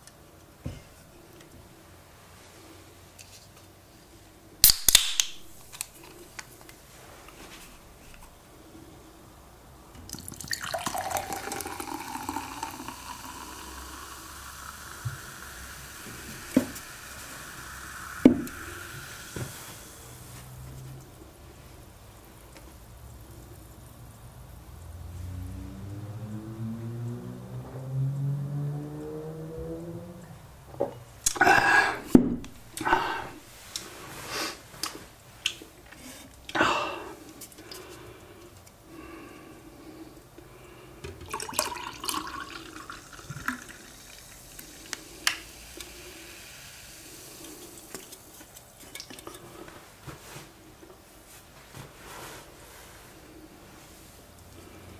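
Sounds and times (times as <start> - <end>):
can clicking and knocking: 4.6 - 5.9
fizzy drink pouring into glass: 10.1 - 20.6, 41.2 - 49.4
soft rustling: 49.4 - 54.4.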